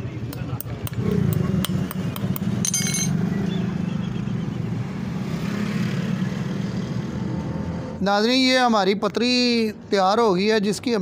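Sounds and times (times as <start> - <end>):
metallic rattle with ringing: 1.6 - 3.2.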